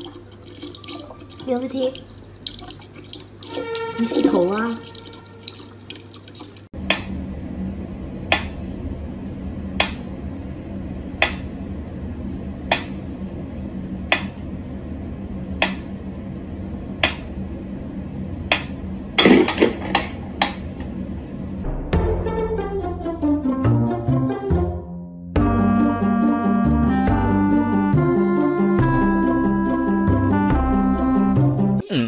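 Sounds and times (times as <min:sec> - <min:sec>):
low steady hum: 0:00.0 - 0:21.7.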